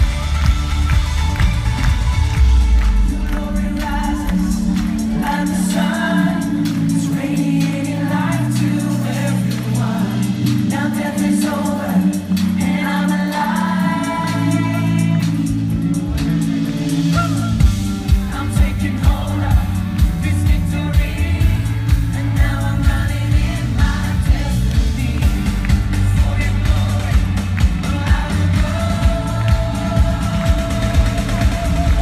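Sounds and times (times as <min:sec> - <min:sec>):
keyboard chords: 0:00.0 - 0:32.0
singers: 0:00.0 - 0:32.0
sustained bass: 0:00.0 - 0:32.0
kick drum steady beat: 0:17.6 - 0:32.0.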